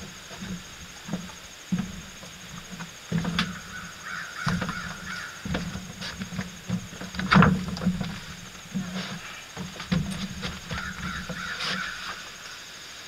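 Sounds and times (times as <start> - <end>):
dull knocks: 0.0 - 12.0
bird harsh calls: 3.5 - 5.5, 10.7 - 12.3.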